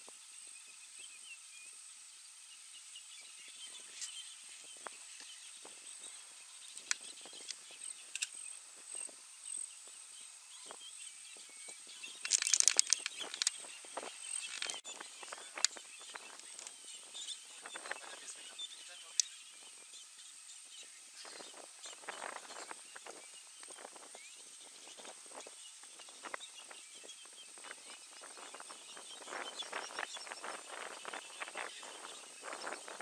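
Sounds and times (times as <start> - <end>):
faint steady high hiss: 0.0 - 33.0
sharp clicks and snaps: 6.8 - 8.4, 12.2 - 13.7
rapid crackling: 12.1 - 16.8.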